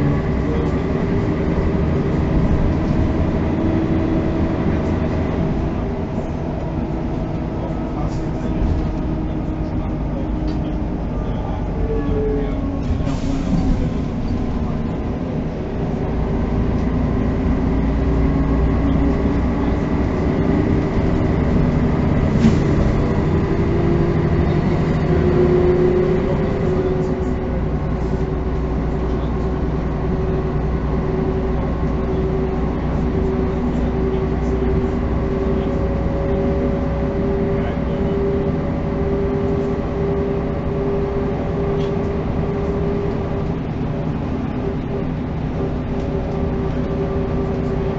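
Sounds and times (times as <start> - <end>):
bus diesel engine: 0.0 - 47.9
steady drivetrain whine: 0.0 - 47.9.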